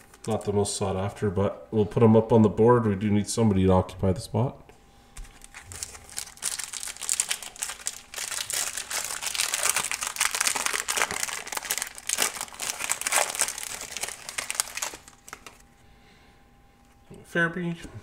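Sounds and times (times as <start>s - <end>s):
foil wrapper crinkling: 0.0s - 0.5s, 5.2s - 15.7s.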